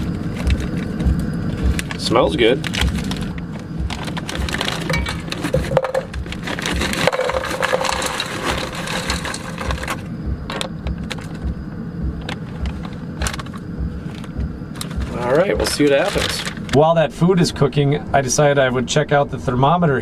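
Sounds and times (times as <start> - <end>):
plastic bag rustling: 0.0 - 10.1, 12.7 - 16.8
frozen food rattling into metal pot: 3.9 - 10.0, 14.8 - 16.7.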